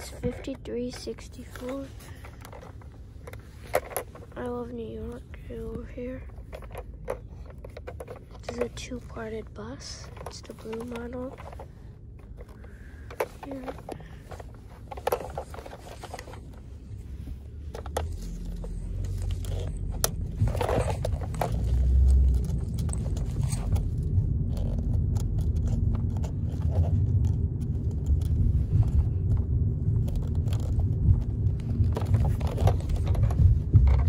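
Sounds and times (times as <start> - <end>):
car cabin rumble: 0.0 - 34.0
plastic toy clicks and scrapes: 6.4 - 11.7, 12.4 - 16.5.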